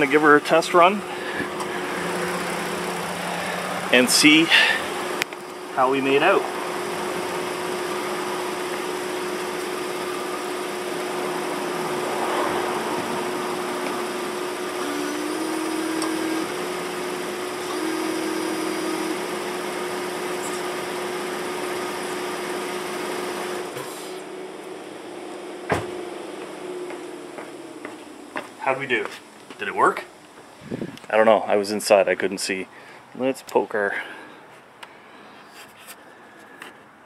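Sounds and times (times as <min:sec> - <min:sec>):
washer pump whining: 0:00.0 - 0:28.9
car engine idling: 0:00.0 - 0:31.1.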